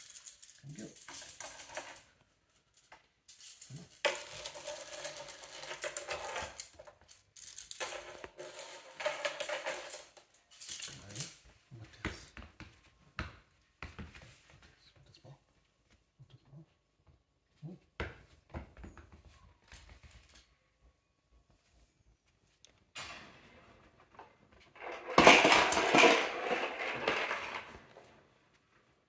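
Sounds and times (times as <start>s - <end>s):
plastic toy keys rattling: 0.0s - 2.0s, 2.7s - 11.4s.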